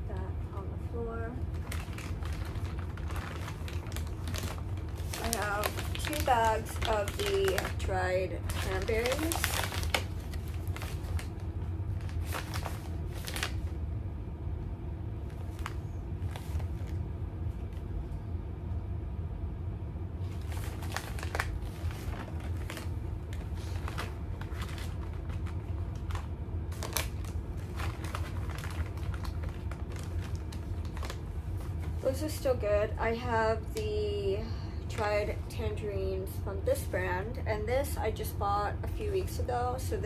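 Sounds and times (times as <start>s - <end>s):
steady low hum: 0.0s - 40.0s
plastic pouches crinkling: 1.5s - 13.7s, 20.3s - 32.0s.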